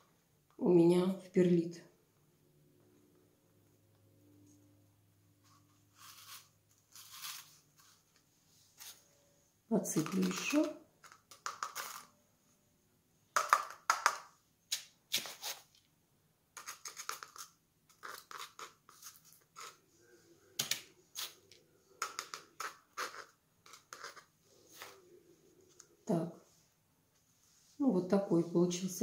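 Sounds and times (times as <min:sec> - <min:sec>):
spoon scooping gritty granules: 0:05.4 - 0:08.0, 0:09.9 - 0:12.1, 0:14.7 - 0:15.8, 0:16.6 - 0:19.9, 0:20.6 - 0:25.2
granules rattling in plastic cup: 0:09.9 - 0:12.1.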